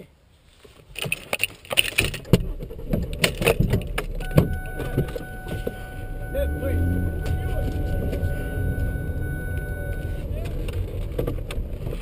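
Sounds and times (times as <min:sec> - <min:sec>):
clicks and rattles of handling: 0:00.7 - 0:04.2
steady tone: 0:03.8 - 0:10.4.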